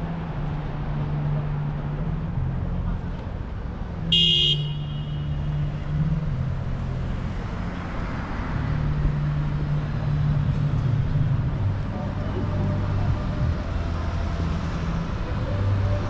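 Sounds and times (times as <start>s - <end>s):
traffic engine hum: 0.0s - 16.0s.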